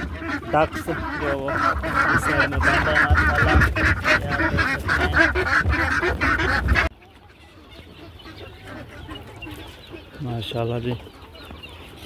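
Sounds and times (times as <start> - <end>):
ducks quacking loudly: 0.0 - 12.0
faint farmyard background: 0.0 - 12.0.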